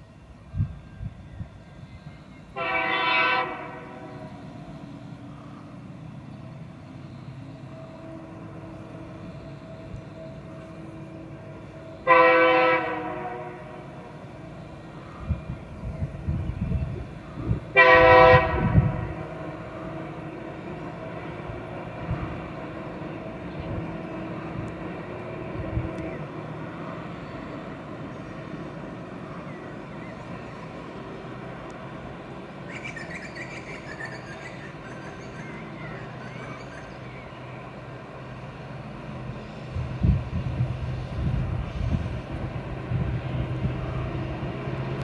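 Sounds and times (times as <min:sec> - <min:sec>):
locomotive horn blasts: 0:02.5 - 0:04.5, 0:07.7 - 0:14.2, 0:17.7 - 0:19.7.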